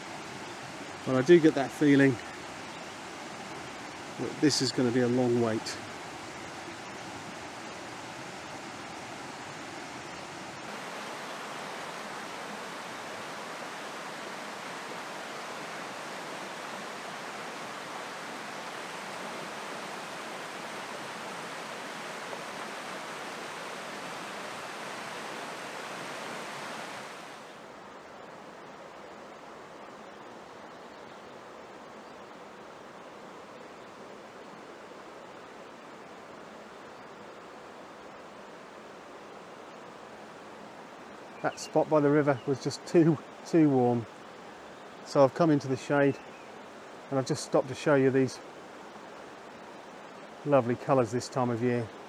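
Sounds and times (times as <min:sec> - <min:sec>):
river rushing over rocks: 0:00.0 - 0:29.8.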